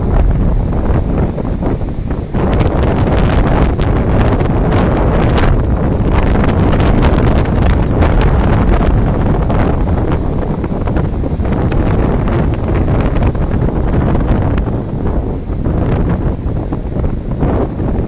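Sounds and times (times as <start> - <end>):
heavy surf breaking: 0.0 - 18.0
wind buffeting microphone: 0.0 - 18.0.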